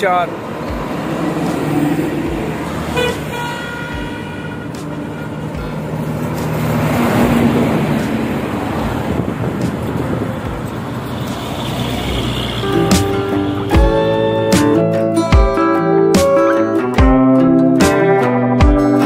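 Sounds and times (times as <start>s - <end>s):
truck driving past: 0.2s - 14.8s
vehicle horn: 2.8s - 6.0s.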